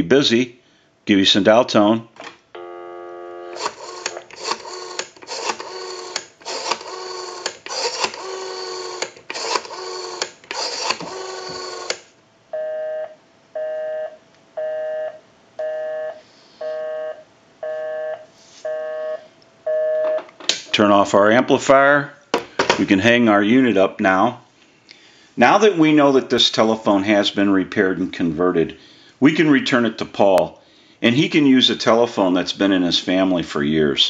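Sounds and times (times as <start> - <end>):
telephone dial tone: 2.6 - 12.0
rotary dial clicking: 3.6 - 12.0
busy signal beeps: 12.6 - 20.2.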